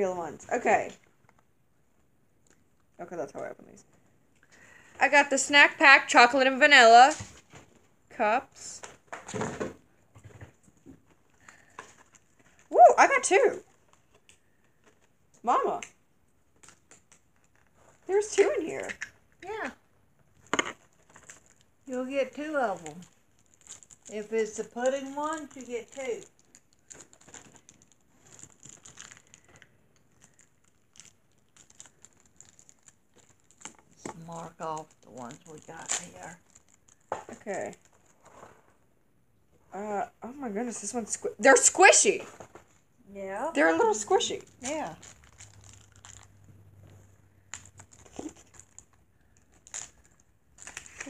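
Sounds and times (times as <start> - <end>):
plastic packaging rustling: 8.6 - 15.3, 16.4 - 19.6, 20.2 - 38.9, 41.5 - 51.0
plastic wrapper crinkling: 11.0 - 38.6, 41.5 - 51.0.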